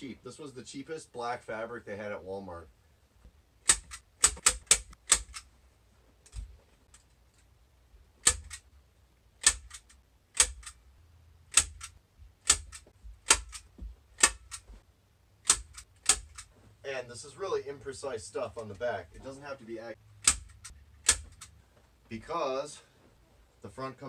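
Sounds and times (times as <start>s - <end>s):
staple gun firing: 3.6s - 5.4s, 8.2s - 8.6s, 9.4s - 10.8s, 11.5s - 13.6s, 14.2s - 14.6s, 15.4s - 16.5s, 20.2s - 21.5s.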